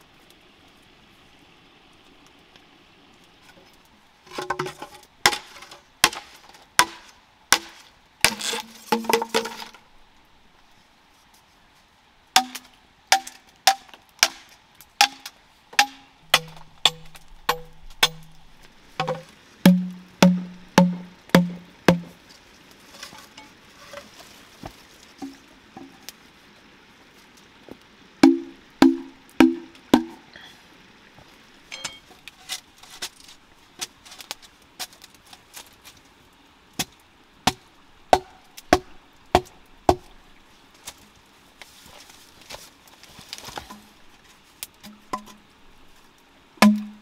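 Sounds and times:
knife chopping wood: 0:05.3 - 0:09.6.

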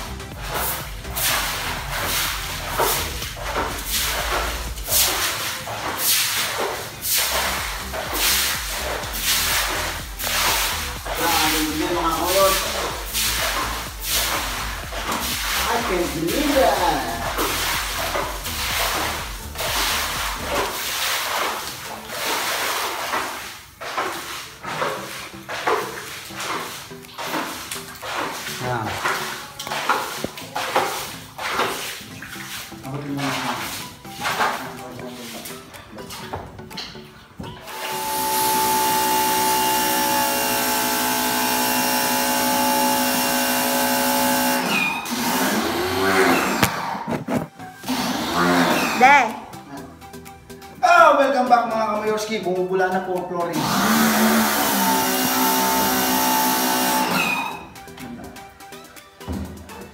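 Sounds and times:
water splashing on concrete floor: 0:00.0 - 0:37.0, 0:37.6 - 0:49.6
electric motor humming with whine: 0:37.7 - 0:46.7, 0:53.6 - 0:57.2.

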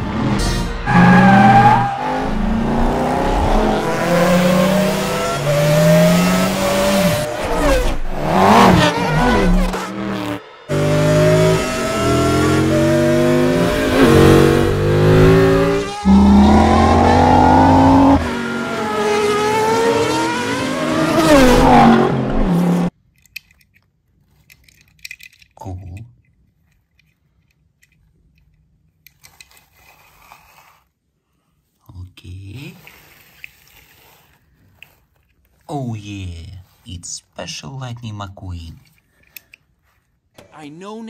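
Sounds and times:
race car engines revving and passing: 0:00.0 - 0:22.9
faint clicks of toy car: 0:23.1 - 0:29.9, 0:38.8 - 0:39.7.

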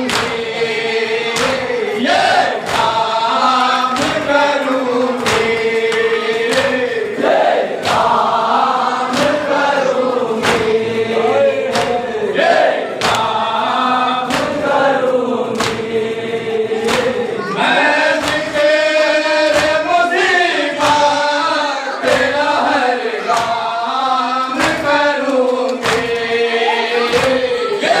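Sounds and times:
hands slapping chests: 0:00.0 - 0:00.5, 0:01.3 - 0:08.4, 0:09.1 - 0:09.6, 0:10.3 - 0:10.8, 0:11.6 - 0:13.4, 0:14.2 - 0:16.0, 0:16.8 - 0:17.2, 0:18.1 - 0:18.8, 0:19.4 - 0:21.2, 0:22.0 - 0:23.8, 0:24.4 - 0:28.0
men chanting in unison: 0:00.0 - 0:28.0.

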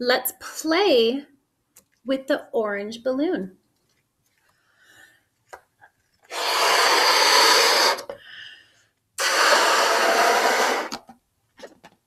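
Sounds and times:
breaths blown into balloon: 0:06.3 - 0:08.3, 0:09.2 - 0:11.1.

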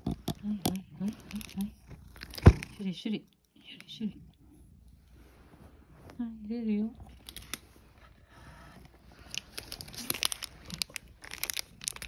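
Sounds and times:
plastic pouch crinkling: 0:09.1 - 0:12.0.

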